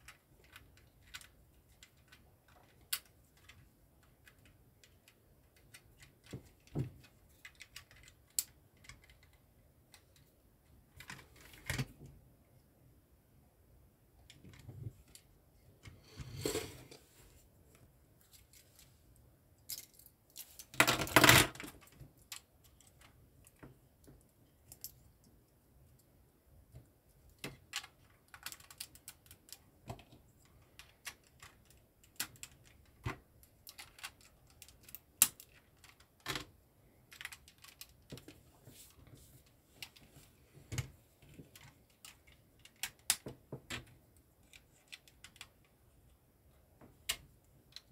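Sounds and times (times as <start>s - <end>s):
plastic bricks clicking and rattling: 19.8s - 23.1s.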